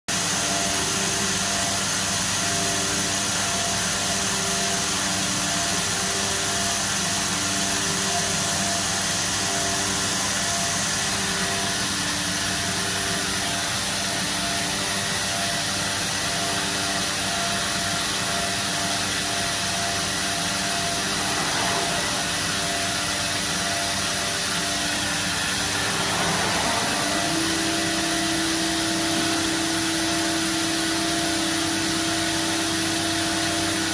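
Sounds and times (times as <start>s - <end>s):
machine rushing noise: 17.7s - 32.3s
pulsing tone: 17.9s - 32.6s
higher steady hum: 18.1s - 33.0s
low hum: 18.6s - 32.2s.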